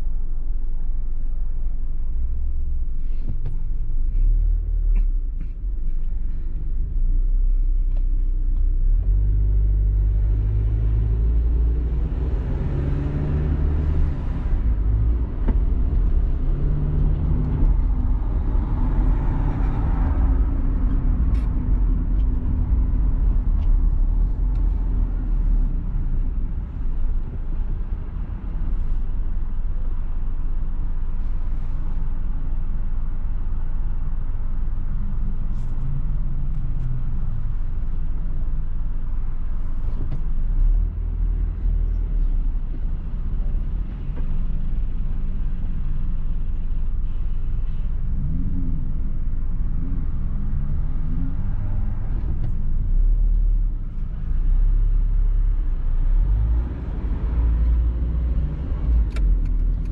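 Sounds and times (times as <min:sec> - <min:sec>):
car engine and tyre rumble: 0:00.0 - 0:59.9.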